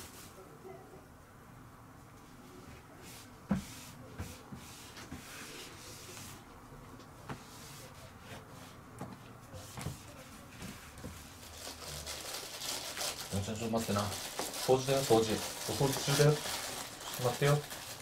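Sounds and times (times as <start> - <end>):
rustling of wiping: 2.2 - 6.5, 7.1 - 18.0.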